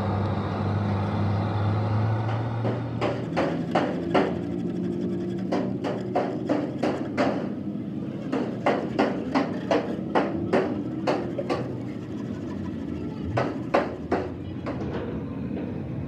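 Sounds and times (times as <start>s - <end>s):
hammer tapping on metal: 2.2s - 4.6s, 5.3s - 7.6s, 8.2s - 12.0s, 13.2s - 15.0s.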